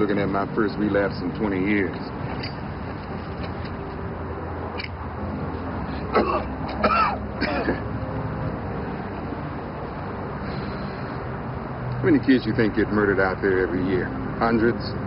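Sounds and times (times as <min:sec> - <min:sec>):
man coughing: 0:06.1 - 0:07.9.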